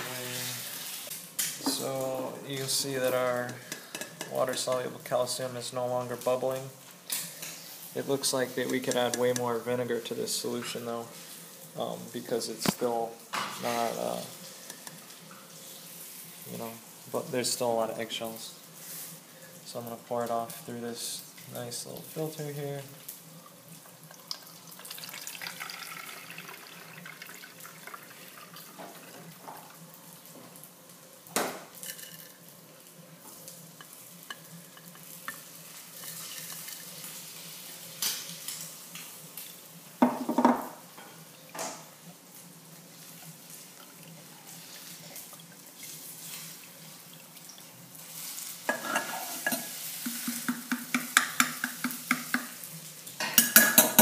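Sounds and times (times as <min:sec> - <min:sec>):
liquid trickling through strainer: 0:24.2 - 0:29.4.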